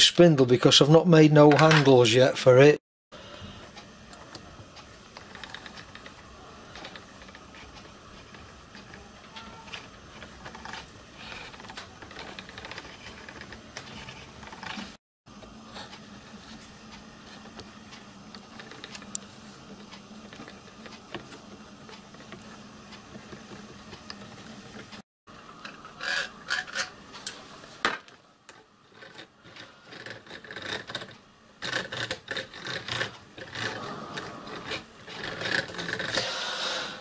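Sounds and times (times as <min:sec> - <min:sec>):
small metal gears clicking and rubbing: 0:04.7 - 0:15.0, 0:25.6 - 0:27.4, 0:28.5 - 0:36.2.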